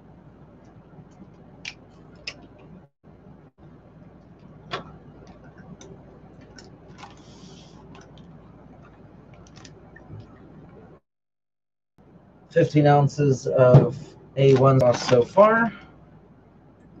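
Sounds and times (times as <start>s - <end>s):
plastic bag crinkling: 6.4s - 8.2s.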